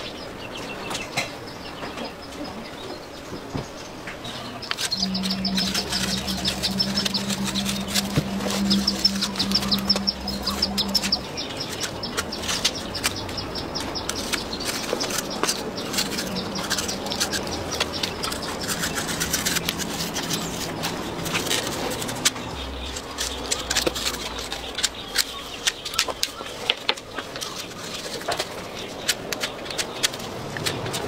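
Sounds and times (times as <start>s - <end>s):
low steady hum: 3.9s - 26.4s
plastic scraper rasping on hide: 4.6s - 31.0s.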